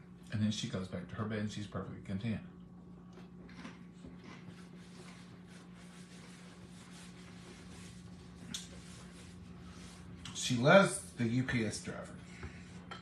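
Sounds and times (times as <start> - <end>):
steady low hum: 0.0 - 13.0
person chewing crunchy chip: 3.1 - 5.2
paper napkin rustling: 4.6 - 10.2.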